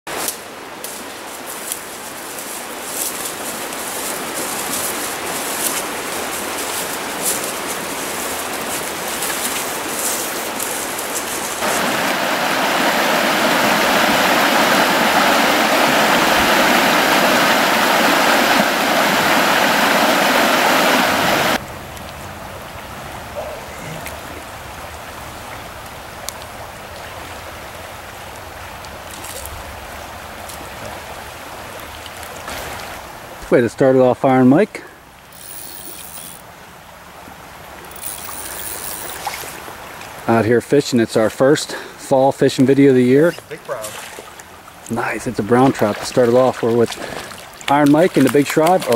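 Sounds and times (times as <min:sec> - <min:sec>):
stream water rushing: 0:00.1 - 0:48.9.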